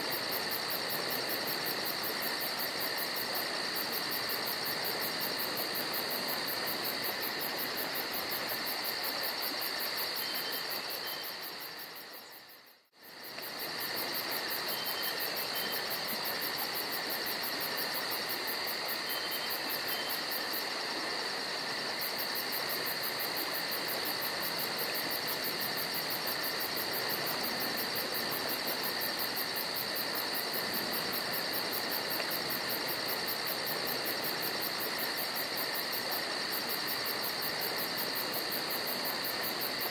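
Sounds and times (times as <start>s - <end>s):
crickets and insects trilling: 0.0s - 39.9s.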